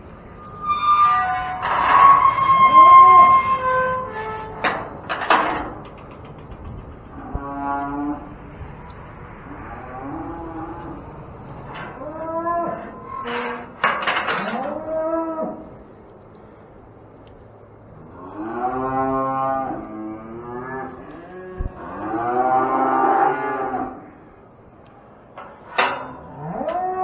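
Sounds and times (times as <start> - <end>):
cattle mooing: 7.1 - 8.4, 9.4 - 13.8, 18.0 - 24.3, 25.8 - 27.0.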